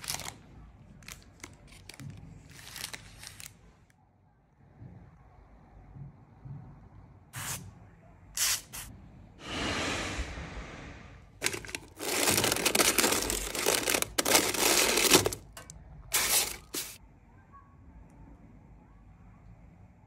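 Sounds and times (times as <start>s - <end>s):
parchment paper crinkling: 0.0s - 3.7s, 11.4s - 17.0s
toasted bread scraping: 16.2s - 17.0s.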